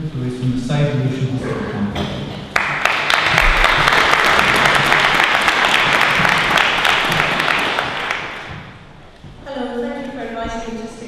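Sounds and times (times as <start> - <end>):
audience applauding: 2.5 - 8.8.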